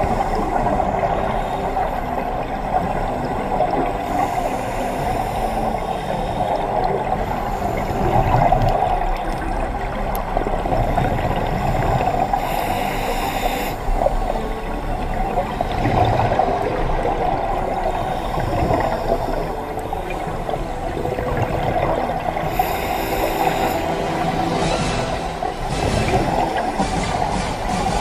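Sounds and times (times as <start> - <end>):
underwater bubbling exhalation: 0.0 - 28.0
regulator inhalation hiss: 4.0 - 8.6, 11.6 - 14.0, 22.4 - 24.9.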